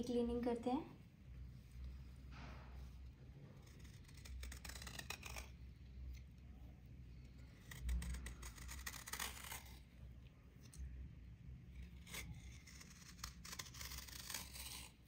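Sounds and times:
knife scraping dried crust: 3.6 - 5.6, 7.5 - 9.8, 11.8 - 15.0.

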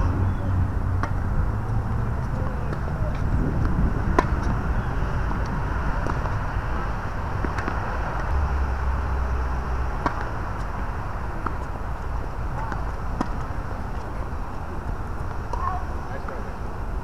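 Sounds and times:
low outdoor rumble: 0.0 - 17.0
racket hitting tennis ball: 1.0 - 1.4, 2.0 - 8.4, 9.9 - 14.2.

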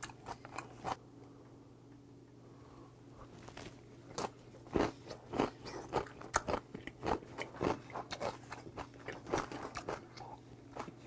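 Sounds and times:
wet chewing crunches: 3.4 - 11.0.

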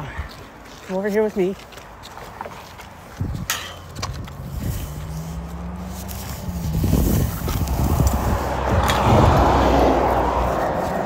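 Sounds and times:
passing vehicle rumble: 2.9 - 11.0.

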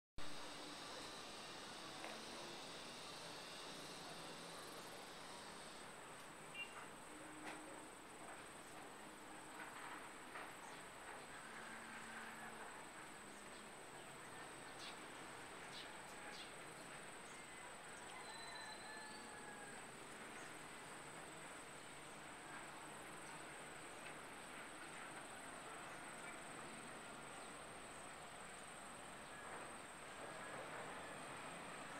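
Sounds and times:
high-pitched insect drone: 0.3 - 5.9
faint whistle: 6.5 - 6.8, 18.1 - 19.3.

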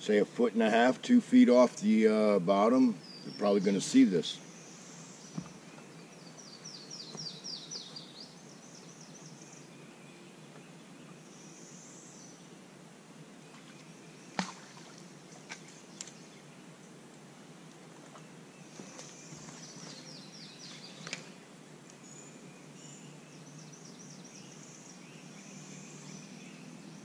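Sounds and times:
bird chirping: 2.8 - 12.5, 18.1 - 27.0.

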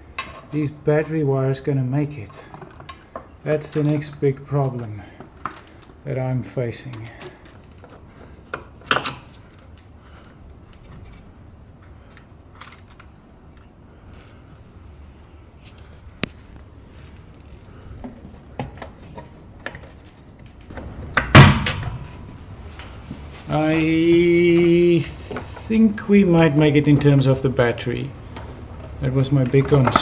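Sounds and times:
hands handling cables and metal: 2.0 - 20.9, 21.6 - 27.2
heavy thump on metal casing: 20.8 - 22.4.

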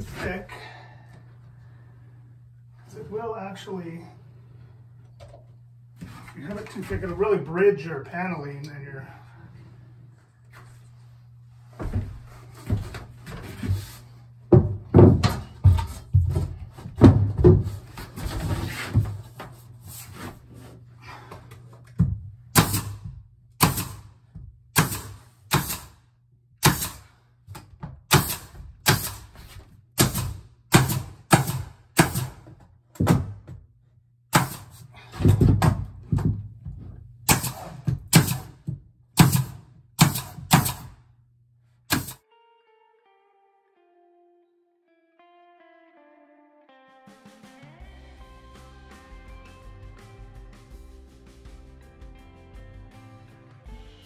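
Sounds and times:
plywood panel thumping: 14.5 - 19.3
nail gun firing: 22.5 - 23.0, 23.6 - 26.0, 26.6 - 27.2, 28.1 - 29.4, 30.0 - 32.5, 34.3 - 34.8, 37.3 - 38.6, 39.2 - 41.0, 41.9 - 42.2.

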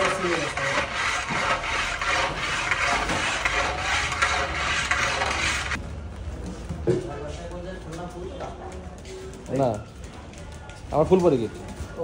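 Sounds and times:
metal rod scraping pot bottom: 0.0 - 5.8.

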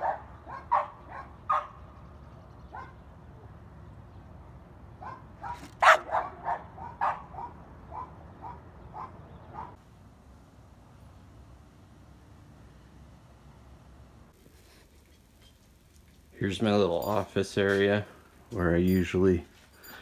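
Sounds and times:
dog barking: 0.0 - 1.8, 2.7 - 3.0, 5.0 - 9.8.

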